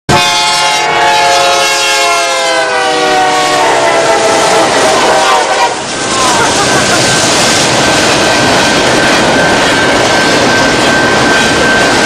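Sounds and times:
locomotive air horn: 0.1s - 6.1s
moving train noise: 0.1s - 12.0s.

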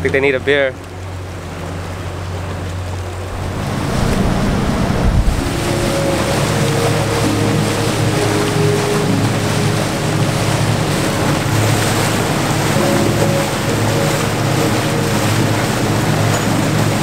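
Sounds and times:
boat motor droning: 0.0s - 17.0s
water washing against hull: 0.0s - 17.0s
wind buffeting microphone: 2.0s - 17.0s.

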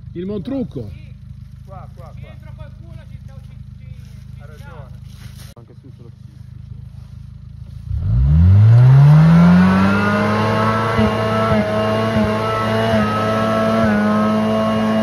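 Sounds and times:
engine revving hard: 7.8s - 15.0s.

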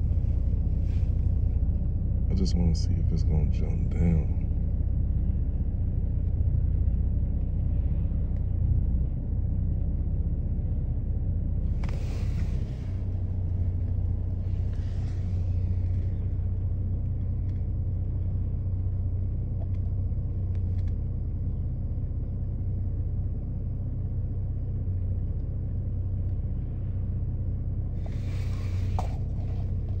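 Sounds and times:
faint hum: 0.0s - 30.0s
steady low rumble: 0.0s - 30.0s.

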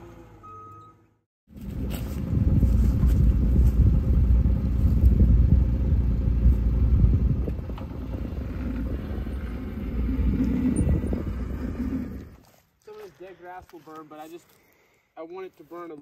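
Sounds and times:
utility vehicle engine idling: 1.6s - 12.4s.

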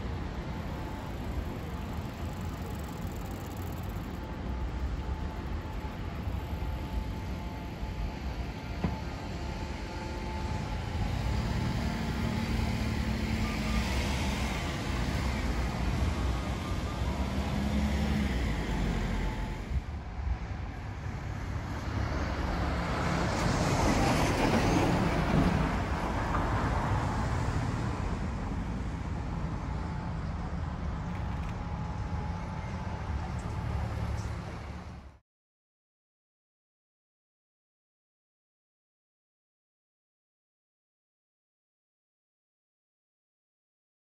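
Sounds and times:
rumble of cars and trucks: 0.0s - 35.2s.

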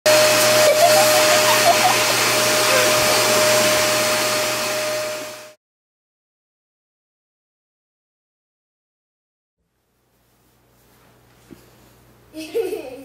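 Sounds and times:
electric fan motor whoosh: 0.1s - 5.6s
steady whine: 0.1s - 5.6s.

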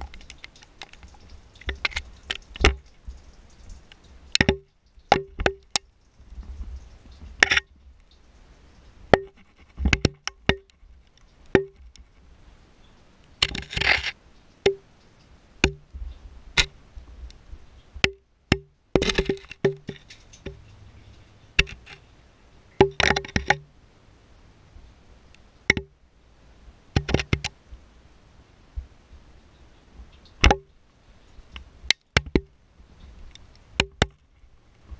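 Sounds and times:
loose rock rattling: 0.0s - 7.9s, 9.1s - 12.2s, 13.4s - 14.9s, 15.6s - 16.8s, 18.0s - 22.1s, 22.8s - 23.7s, 27.0s - 27.6s, 30.2s - 30.8s, 31.5s - 32.6s, 33.3s - 34.9s.

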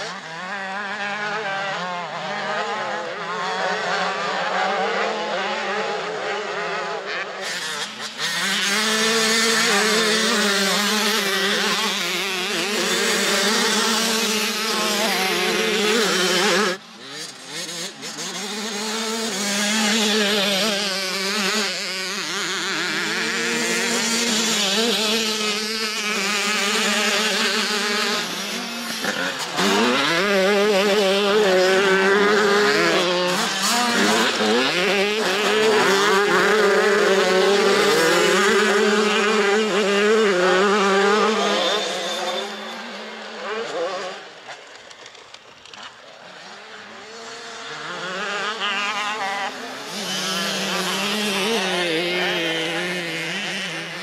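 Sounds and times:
motocross bike engines revving: 0.0s - 54.0s.

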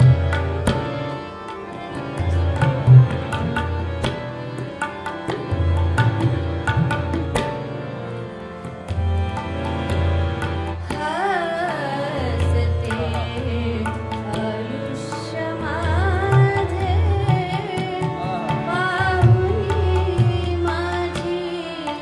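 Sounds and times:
harmonium chords: 0.0s - 22.0s
tabla strokes: 0.0s - 22.0s
woman singing: 10.8s - 22.0s.

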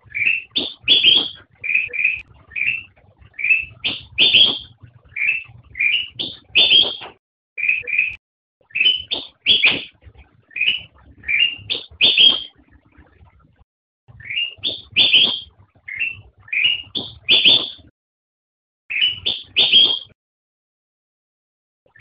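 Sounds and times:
bird singing whistled notes: 0.0s - 12.6s, 14.2s - 17.9s, 18.9s - 20.2s.

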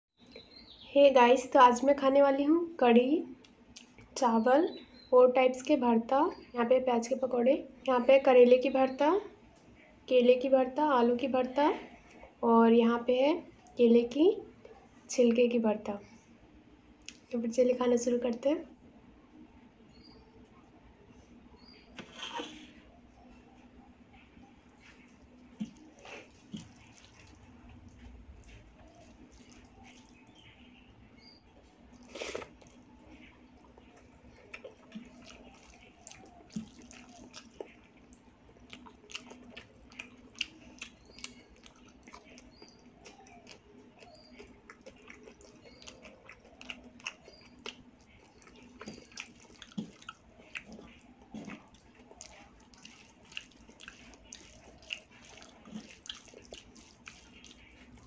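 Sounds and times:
faint steady hum: 0.2s - 58.0s
wet chewing and lip smacks: 3.4s - 4.2s, 17.0s - 17.3s, 23.5s - 30.6s, 31.5s - 58.0s
fingers squishing food: 24.7s - 30.8s, 31.5s - 58.0s.

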